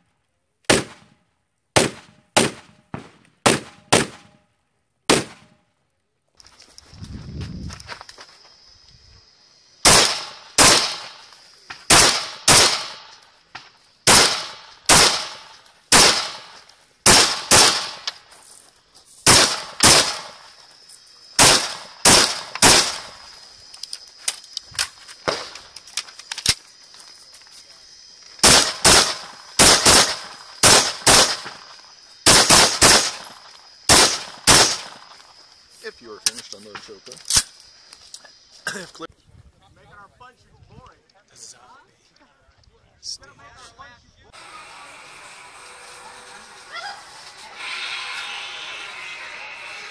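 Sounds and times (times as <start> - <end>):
rifle shots: 0.7 - 4.4, 5.1 - 5.6, 9.8 - 11.3, 11.9 - 13.2, 14.0 - 18.1, 19.2 - 20.5, 21.4 - 23.2, 28.4 - 31.6, 32.2 - 35.1.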